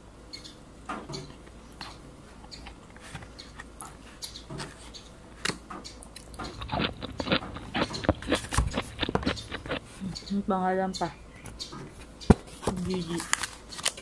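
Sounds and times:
chewing: 5.4 - 10.4
paper box crackling: 12.3 - 14.0.

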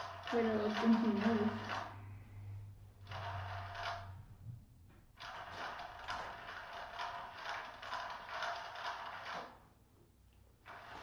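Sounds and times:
plastic ball rattling and rolling: 5.2 - 9.6.

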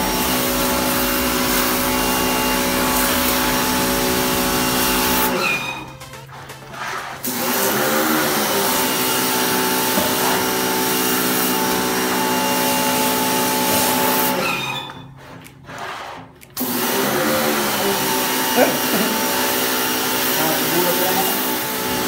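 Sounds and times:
pressure washer motor whine: 0.0 - 15.2, 16.6 - 22.0.

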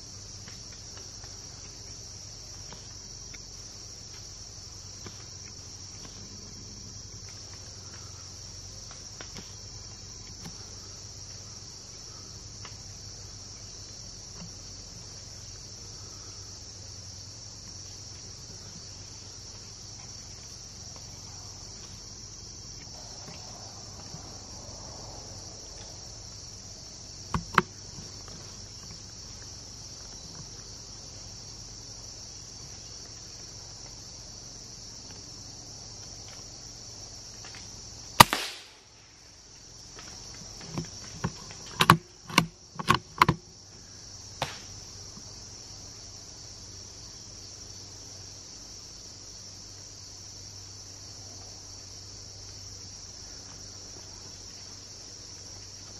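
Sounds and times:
high-pitched insect chorus: 0.0 - 55.9
loud sharp crack: 38.2 - 38.9, 44.4 - 44.7.

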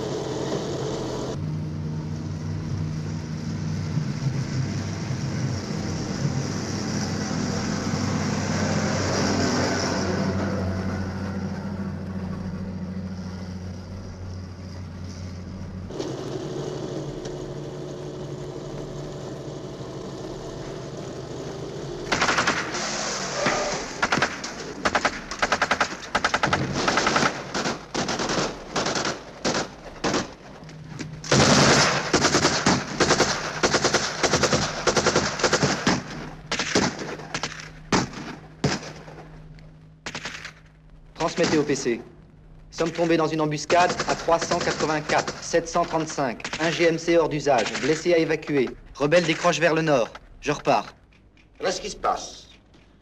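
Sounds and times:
truck engine running: 0.0 - 46.3
machine-gun fire: 22.1 - 30.4, 31.3 - 39.2, 40.0 - 40.6, 41.2 - 41.9, 43.6 - 48.1
single gunshots: 22.1 - 30.4, 31.3 - 39.1, 41.2 - 41.9, 43.6 - 48.1.

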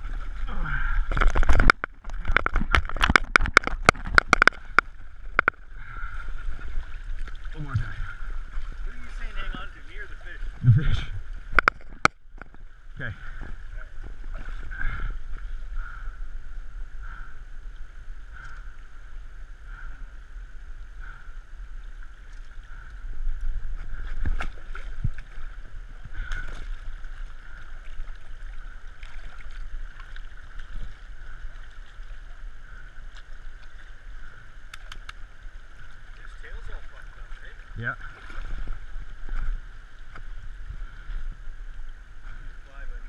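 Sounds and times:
water splashes and knocks: 1.0 - 12.6, 23.7 - 32.0.

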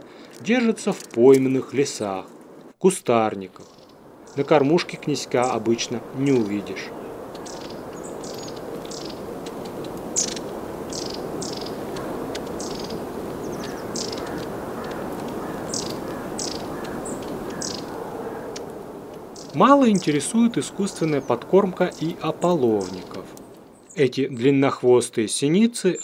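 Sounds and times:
low background rush: 0.0 - 24.6
songbirds high-pitched calls: 3.6 - 24.1.

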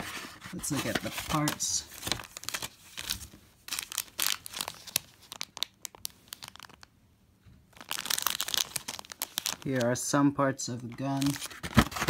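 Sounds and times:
plastic bag crinkling: 0.6 - 6.9, 7.7 - 10.1, 11.1 - 12.0.

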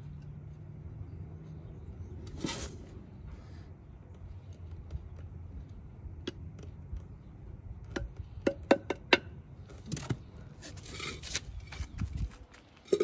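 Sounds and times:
trowel scraping soil: 2.2 - 3.0, 10.6 - 11.8.

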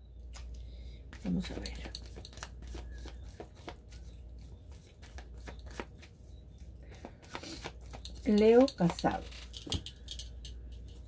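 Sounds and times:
steady low hum: 0.0 - 11.0
cards being shuffled: 1.2 - 6.2, 6.9 - 9.7.

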